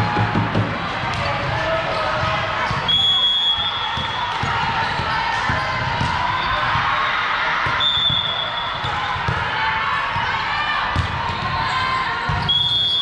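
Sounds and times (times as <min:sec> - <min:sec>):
crowd hubbub: 0:00.0 - 0:13.0
high whistle tone: 0:07.8 - 0:08.8.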